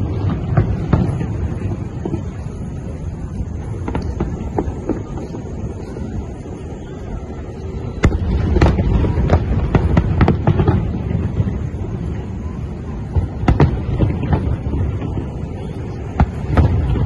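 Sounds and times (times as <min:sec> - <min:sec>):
fireworks bangs and crackling: 0:00.0 - 0:17.0
low continuous rumble: 0:00.0 - 0:17.0.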